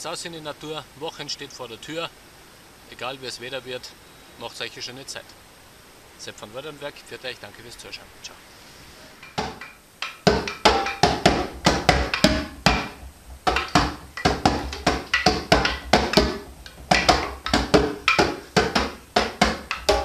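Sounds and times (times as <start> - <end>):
wooden sound stick struck: 9.1 - 20.0
djembe played by hand: 9.2 - 20.0.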